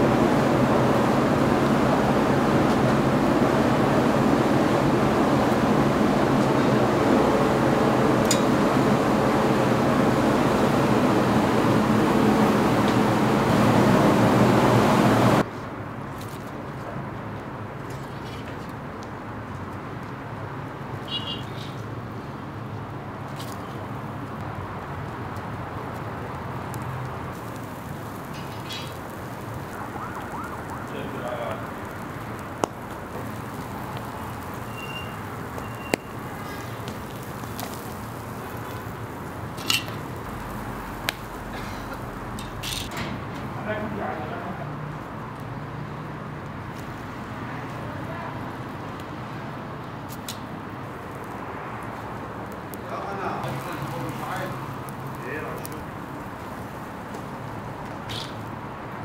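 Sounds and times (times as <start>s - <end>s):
fire crackling: 0.0s - 59.0s
fire hissing: 0.0s - 59.0s
outdoor background noise: 0.0s - 59.0s
whistle-like chirps: 34.7s - 36.2s.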